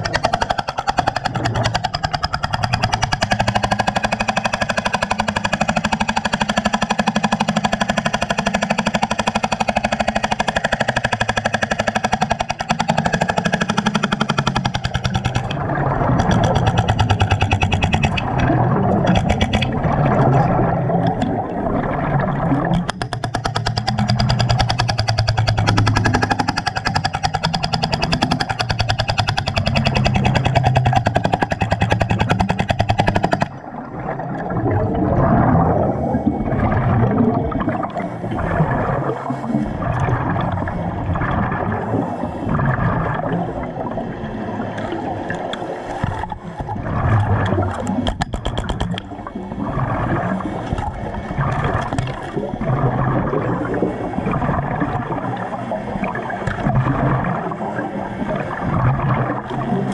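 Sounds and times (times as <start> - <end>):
jackhammer chipping concrete underwater: 0.0 - 33.6, 44.8 - 49.2, 49.8 - 53.5.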